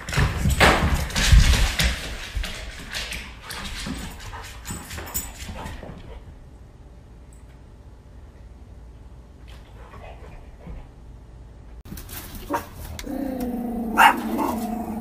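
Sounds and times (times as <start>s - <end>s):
dog paws clicking on hardwood: 0.0s - 6.2s.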